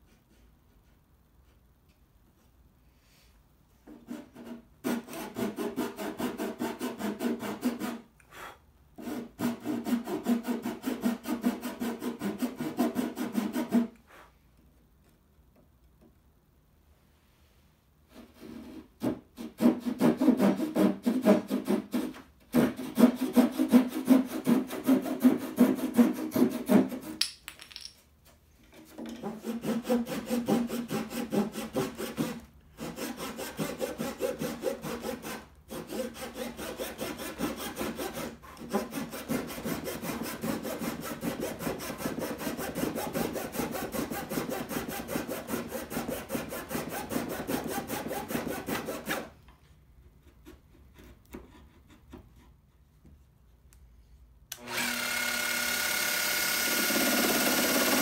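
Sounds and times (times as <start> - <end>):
hand saw cutting wood: 3.9 - 14.0, 18.1 - 27.2, 28.9 - 49.4, 54.5 - 58.0.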